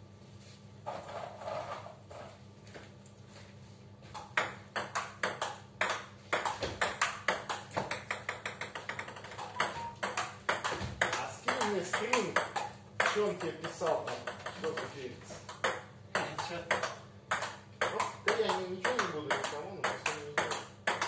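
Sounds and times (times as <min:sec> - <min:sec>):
ball bouncing on table: 0:04.1 - 0:21.0
table tennis ball clicking: 0:04.2 - 0:14.9, 0:15.5 - 0:21.0.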